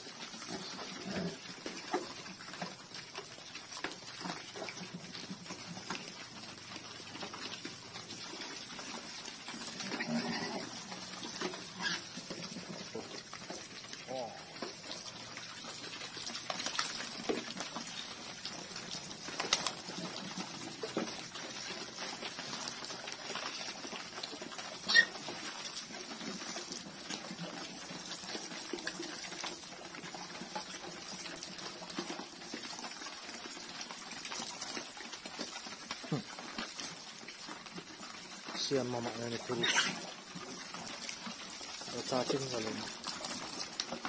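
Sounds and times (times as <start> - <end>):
pigs chewing and slurping: 0.0 - 44.0
pigs grunting: 0.3 - 2.4, 8.4 - 16.0, 35.9 - 36.8, 38.5 - 40.8
hose spraying water: 41.0 - 44.0.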